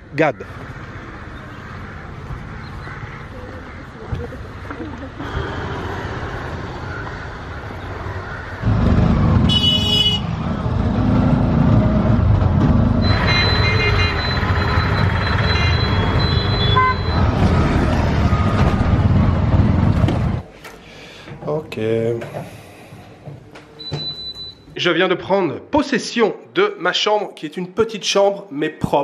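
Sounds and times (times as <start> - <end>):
auto-rickshaw engine and road noise: 0.0 - 20.5.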